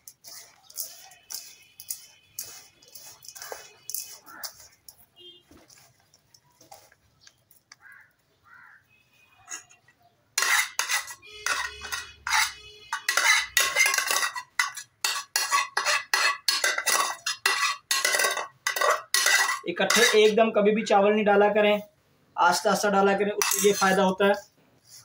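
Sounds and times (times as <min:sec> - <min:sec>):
metal spoon scraping saucepan: 0:00.0 - 0:05.0, 0:09.4 - 0:20.4, 0:22.5 - 0:25.0.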